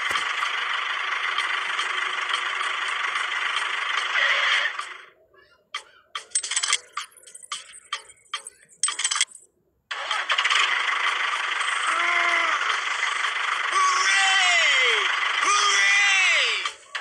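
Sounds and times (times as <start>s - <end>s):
toy tractor engine drone: 0.0s - 5.2s, 9.9s - 17.0s.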